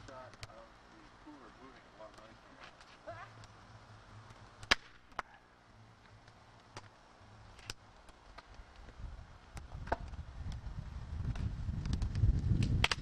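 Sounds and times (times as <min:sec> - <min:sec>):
dead wood cracking and snapping: 0:04.2 - 0:05.3, 0:11.3 - 0:13.0.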